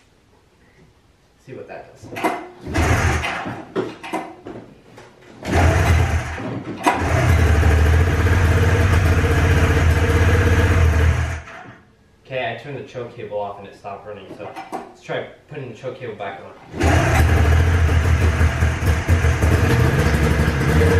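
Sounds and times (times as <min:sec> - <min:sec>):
snowmobile engine sputtering and running: 0:16.8 - 0:20.9.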